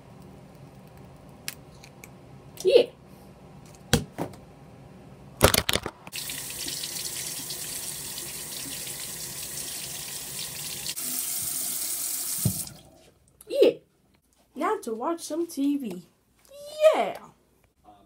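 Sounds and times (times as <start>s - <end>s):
faucet water splashing: 6.1s - 13.0s.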